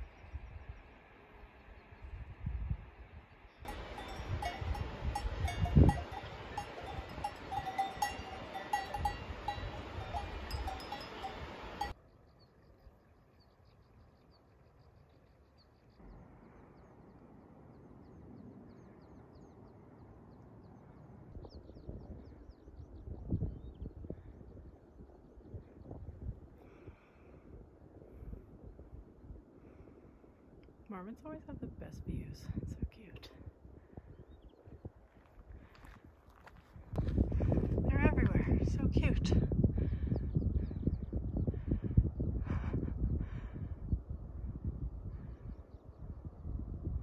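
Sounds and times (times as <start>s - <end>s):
faint wind: 0.0s - 47.0s
cowbells clanking: 3.7s - 12.0s.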